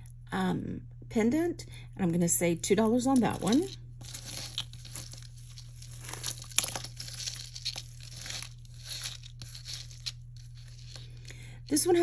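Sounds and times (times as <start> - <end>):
low steady hum: 0.0 - 12.0
jewelry rustling and clicking: 3.1 - 11.3.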